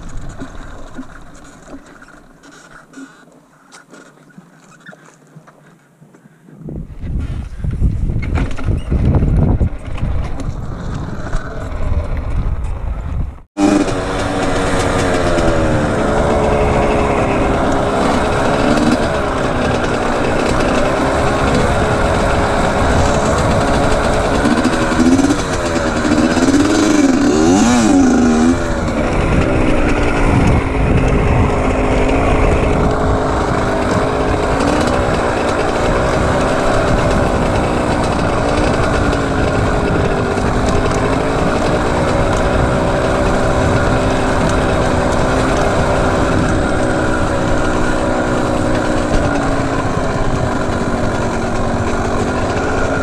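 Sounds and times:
low rumbling noise: 0:06.8 - 0:53.0
dirt bike engine revving: 0:13.6 - 0:53.0.

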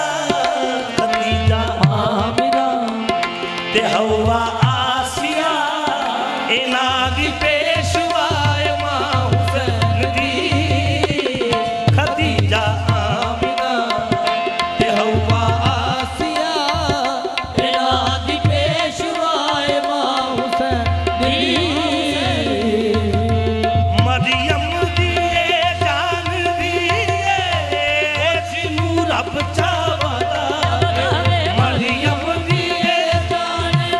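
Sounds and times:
harmonium drone: 0:00.0 - 0:33.9
person singing: 0:14.8 - 0:25.6, 0:28.8 - 0:33.9
hand drums beat: 0:30.0 - 0:33.0.

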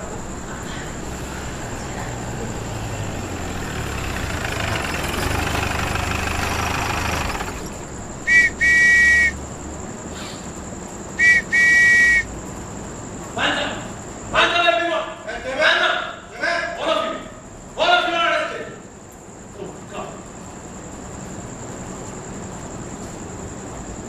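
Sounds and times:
rushing noise: 0:00.0 - 0:09.4, 0:11.2 - 0:12.3
two-tone whistle blasts: 0:08.2 - 0:09.4, 0:11.2 - 0:12.3.

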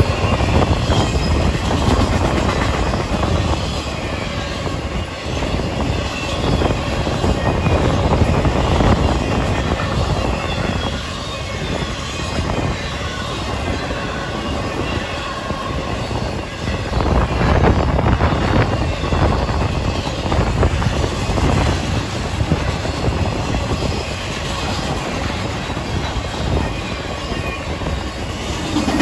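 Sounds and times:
freight train rumbling: 0:00.0 - 0:29.0
wind buffeting microphone: 0:00.0 - 0:29.0.

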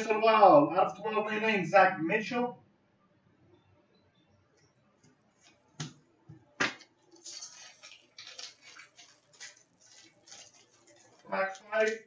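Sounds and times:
foil card pack crinkling: 0:07.1 - 0:12.0.

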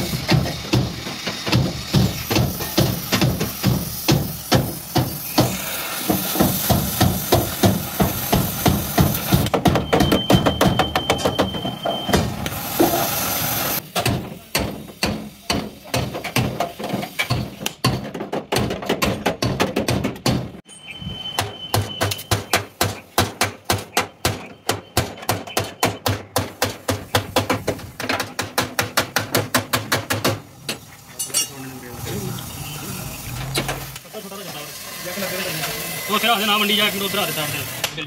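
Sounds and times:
hammer blows on sheet steel: 0:00.0 - 0:13.1, 0:13.8 - 0:20.6, 0:21.3 - 0:30.8.

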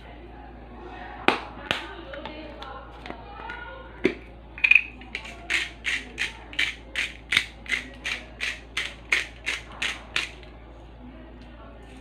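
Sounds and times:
spice grinder grinding: 0:04.6 - 0:10.5.

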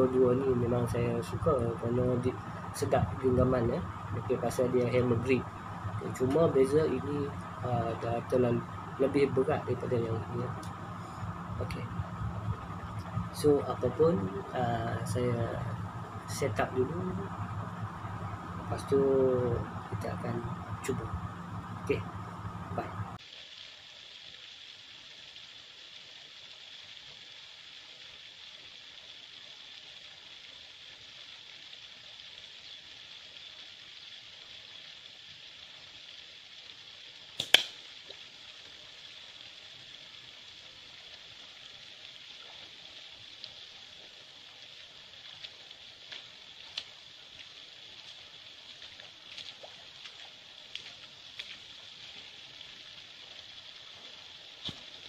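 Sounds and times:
insects droning: 0:00.0 - 0:55.0
stream flowing: 0:00.0 - 0:55.0
slingshot crack: 0:37.4 - 0:37.9.

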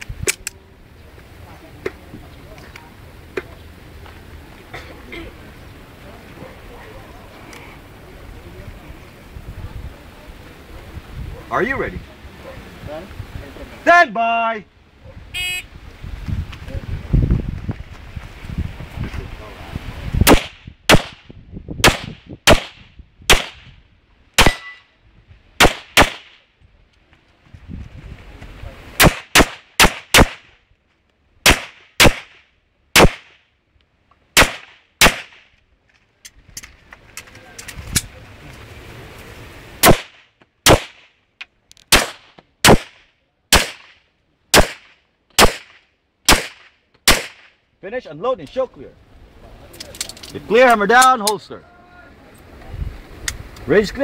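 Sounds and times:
pistol shots: 0:20.2 - 0:21.2, 0:21.8 - 0:23.7, 0:24.4 - 0:24.8, 0:25.6 - 0:26.4, 0:29.0 - 0:30.5, 0:31.4 - 0:32.4, 0:33.0 - 0:33.4, 0:34.4 - 0:35.4, 0:39.8 - 0:41.0, 0:41.9 - 0:47.5
handgun shots: 0:44.6 - 0:47.5.

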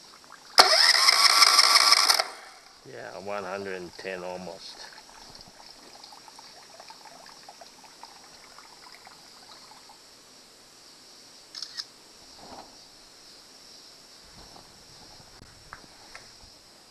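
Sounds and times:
faint high hiss: 0:00.0 - 0:16.9
camera shutter double click: 0:11.5 - 0:11.9.

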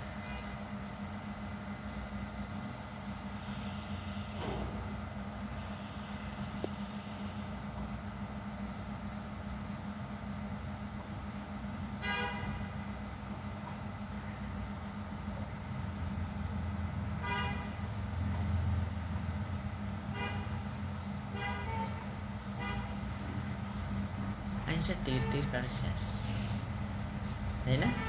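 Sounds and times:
traffic rumble: 0:00.0 - 0:28.0
vehicle horn toots: 0:03.3 - 0:07.5, 0:12.0 - 0:12.8, 0:17.1 - 0:17.9, 0:20.1 - 0:23.0, 0:25.0 - 0:25.6, 0:27.7 - 0:28.0.

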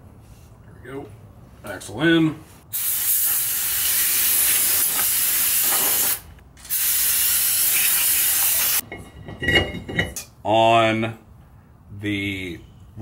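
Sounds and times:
aerosol spray hissing: 0:02.7 - 0:08.8.

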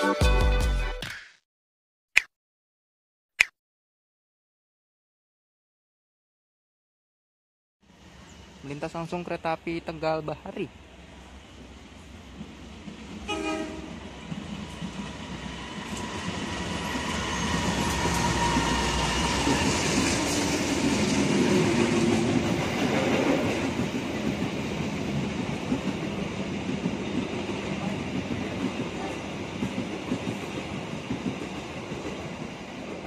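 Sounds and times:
train wheels rumbling on rails: 0:11.6 - 0:33.0
train horn: 0:13.2 - 0:14.0.

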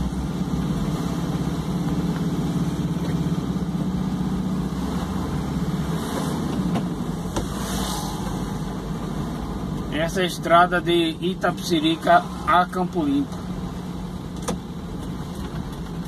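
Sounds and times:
car engine droning: 0:00.0 - 0:16.0
road noise: 0:00.0 - 0:16.0.

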